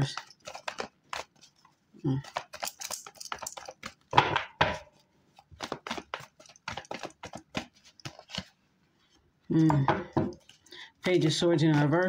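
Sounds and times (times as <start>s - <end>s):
cards being shuffled: 0.0s - 4.2s, 4.8s - 8.6s, 10.3s - 12.0s.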